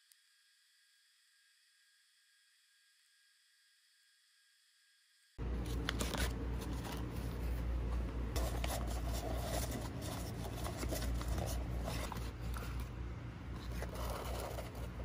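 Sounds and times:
steady low hum: 0.0s - 15.0s
handling scraping and rustling: 5.5s - 15.0s.

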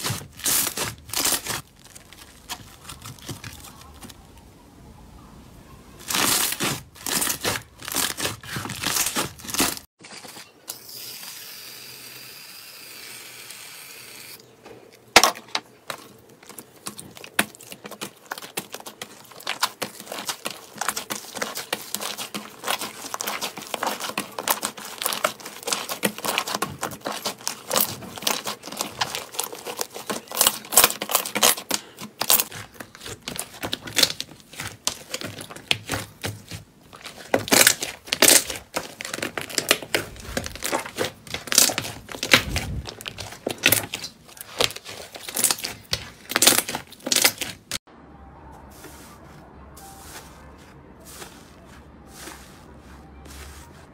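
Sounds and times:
slime crackling and popping: 16.6s - 47.8s.

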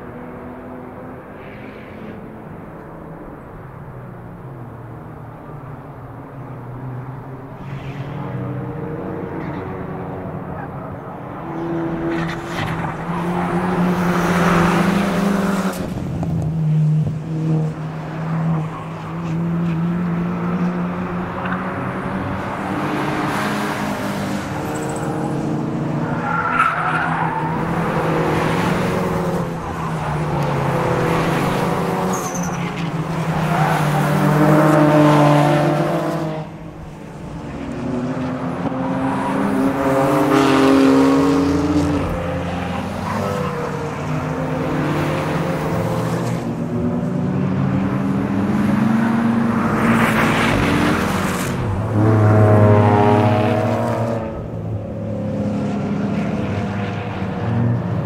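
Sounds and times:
race car engines revving: 0.0s - 58.0s
tyre squeal: 32.1s - 34.1s.

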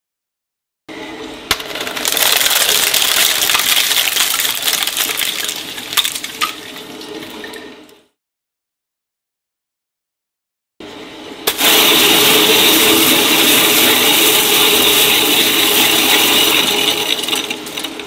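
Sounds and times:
plastic straws crunching and snapping: 1.6s - 6.6s
shredder humming: 11.5s - 18.0s.

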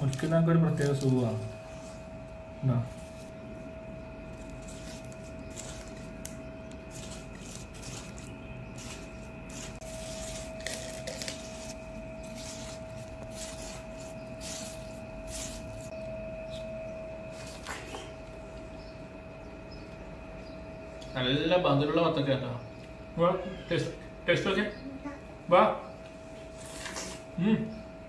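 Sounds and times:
faint hum with thin tone: 0.0s - 28.0s
knife cutting watermelon: 4.5s - 15.9s.

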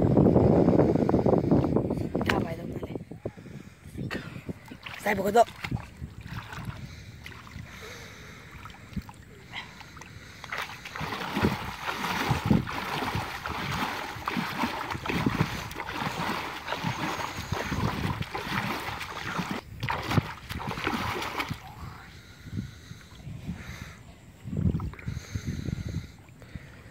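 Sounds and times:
hands splashing in water: 8.5s - 21.7s.

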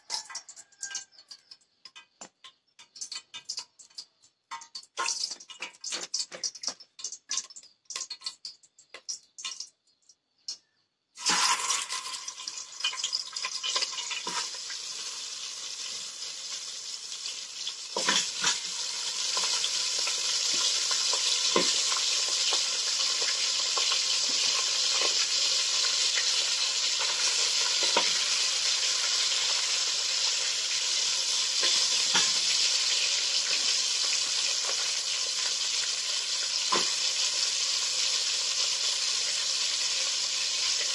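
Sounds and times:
meat sizzling in a pot: 0.0s - 9.7s, 11.2s - 40.9s
knocks of pieces in pot: 1.8s - 9.7s.

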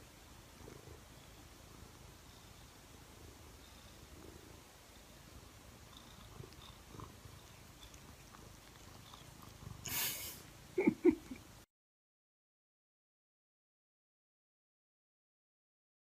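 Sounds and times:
cat purring: 0.0s - 11.5s.

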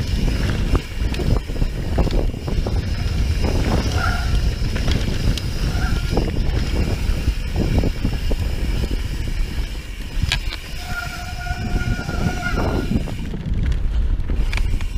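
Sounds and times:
tyres rolling on dirt trail: 0.0s - 14.9s
bike brakes squealing: 2.9s - 4.7s, 5.4s - 7.5s, 9.6s - 13.3s.

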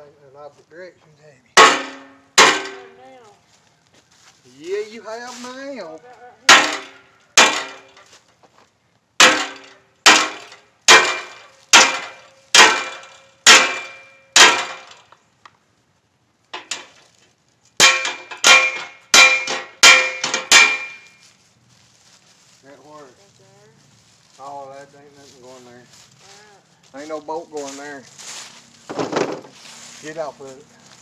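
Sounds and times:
sledgehammer striking steel panel: 1.6s - 3.0s, 6.5s - 8.0s, 9.2s - 15.1s, 17.8s - 21.1s.

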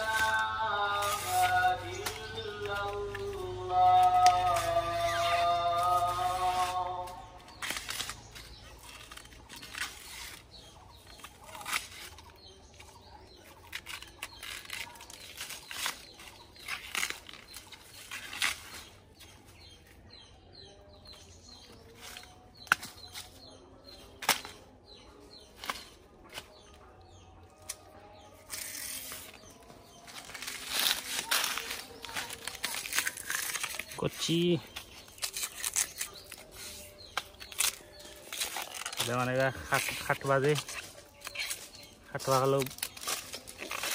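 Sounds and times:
banana stem snapping and tearing: 1.2s - 10.4s, 13.5s - 18.8s, 24.0s - 24.7s, 27.6s - 29.2s, 30.1s - 34.1s, 34.8s - 39.4s, 40.6s - 43.9s.

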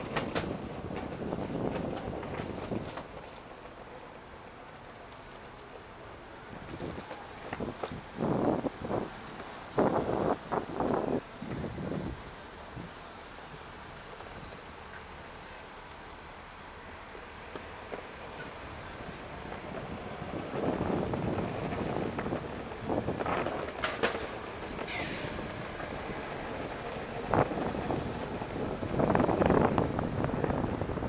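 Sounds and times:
street traffic hum: 0.0s - 31.0s.

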